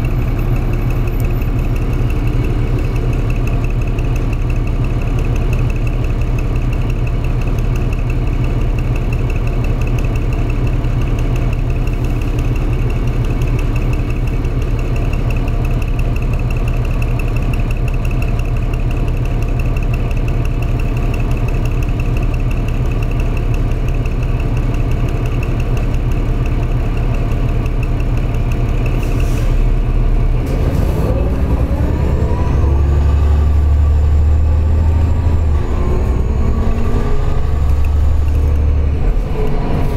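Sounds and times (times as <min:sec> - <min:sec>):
bus engine idling and revving: 0:00.0 - 0:39.9.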